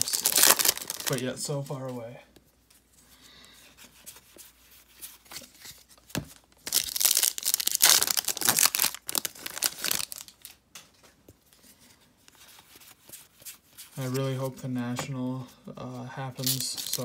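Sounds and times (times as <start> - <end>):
card pack wrapper tearing: 0.0 - 1.2, 6.6 - 10.6, 16.4 - 17.0.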